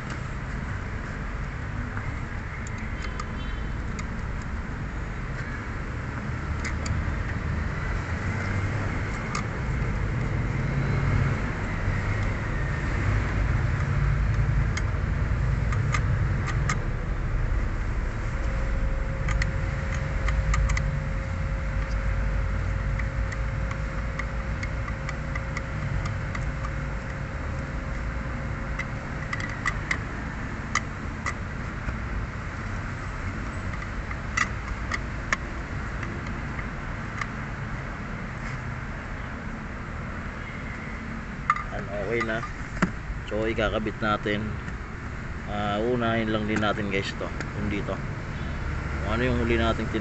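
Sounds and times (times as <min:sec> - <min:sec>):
steady low rumble: 0:00.0 - 0:50.0
socket wrench clicking: 0:01.4 - 0:04.6, 0:06.5 - 0:07.4, 0:08.3 - 0:09.6, 0:11.9 - 0:16.9, 0:18.4 - 0:37.4, 0:41.4 - 0:43.6.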